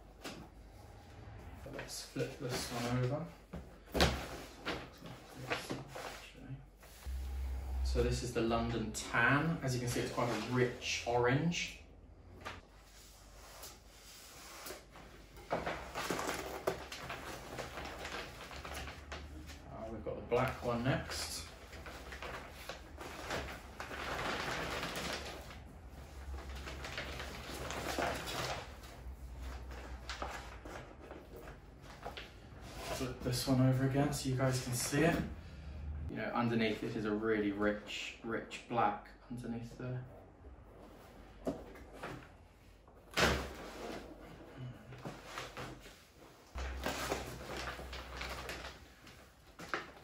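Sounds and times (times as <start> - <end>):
paper rustling and crinkling: 14.6 - 19.6, 20.3 - 33.5, 43.2 - 50.0
leather and paper rustling: 46.6 - 50.0.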